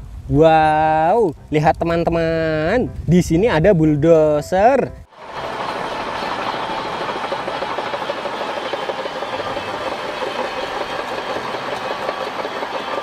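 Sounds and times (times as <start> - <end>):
bulldozer diesel engine: 5.2 - 13.0
steel tracks clattering: 5.2 - 13.0.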